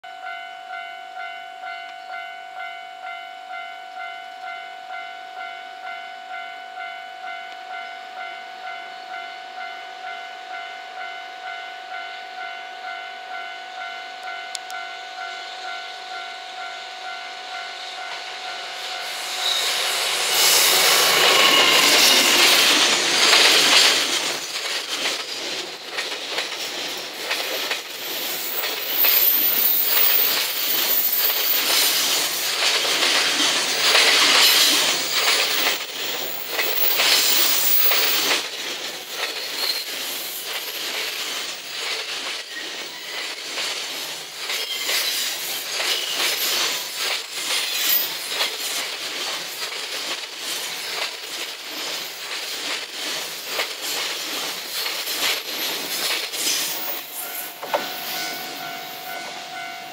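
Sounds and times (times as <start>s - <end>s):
freight train wheels clattering: 19.0s - 59.7s
wheel squeals: 19.1s - 24.2s, 26.7s - 32.7s, 39.2s - 43.5s, 44.5s - 48.7s, 52.7s - 59.8s.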